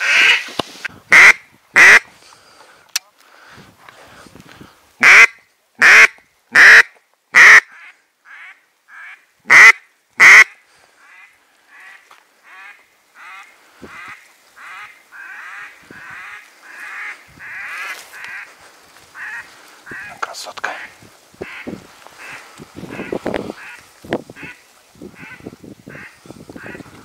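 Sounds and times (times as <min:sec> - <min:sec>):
duck quacking: 0:01.1 - 0:02.1, 0:05.0 - 0:18.5, 0:19.2 - 0:20.2, 0:20.8 - 0:23.8.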